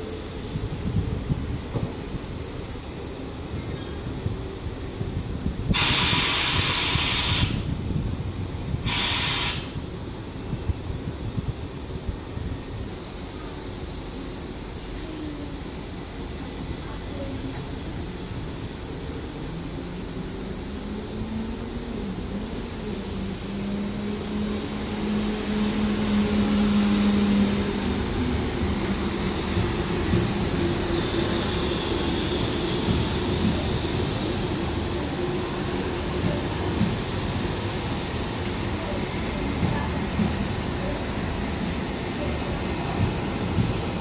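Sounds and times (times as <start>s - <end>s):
compressed air hissing: 5.7s - 7.7s, 8.8s - 9.8s.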